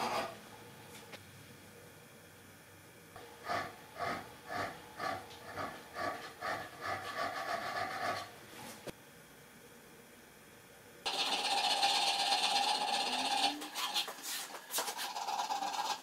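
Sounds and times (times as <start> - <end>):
hand file stroking steel: 3.5 - 8.3, 11.4 - 16.0.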